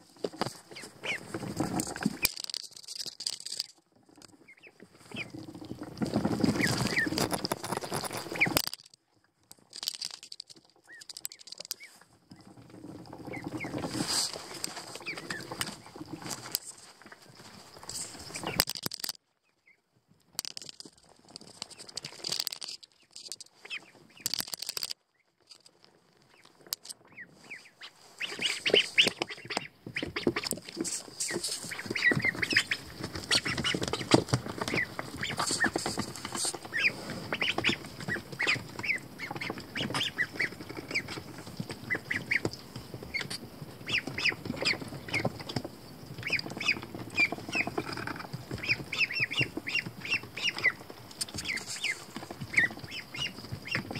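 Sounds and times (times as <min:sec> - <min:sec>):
ducklings peeping: 0:00.2 - 0:03.7, 0:04.3 - 0:08.6, 0:10.8 - 0:16.5, 0:18.1 - 0:18.7, 0:23.0 - 0:24.5, 0:26.2 - 0:53.9.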